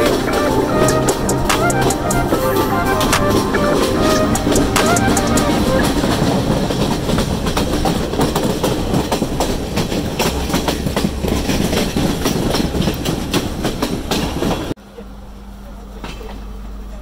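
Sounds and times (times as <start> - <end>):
train rumble: 0.0 - 14.8
train wheels clacking over rail joints: 5.8 - 14.7.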